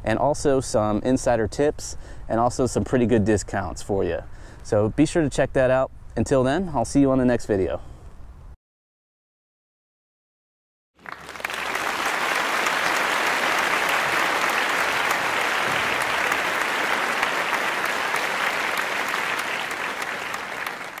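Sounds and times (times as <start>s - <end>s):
applause: 11.0s - 21.0s.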